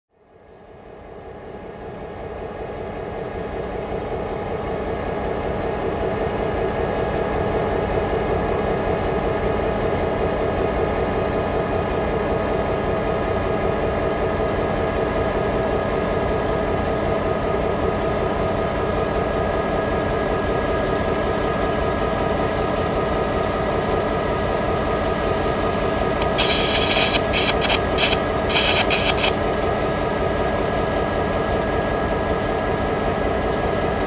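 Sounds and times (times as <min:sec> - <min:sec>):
diesel locomotive idling: 0:17.1 - 0:34.0.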